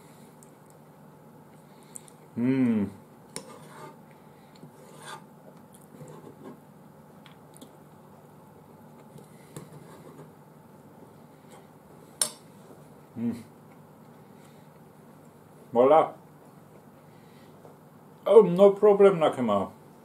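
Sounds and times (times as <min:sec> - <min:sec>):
eating and handling sounds: 0:00.0 - 0:02.4, 0:03.1 - 0:10.0, 0:10.8 - 0:15.7.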